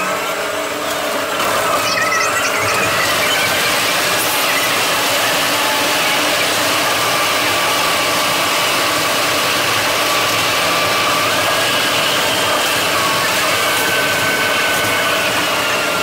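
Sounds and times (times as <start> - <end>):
faint high whine: 1.4 - 16.0
bus engine and tyres running: 6.0 - 16.0.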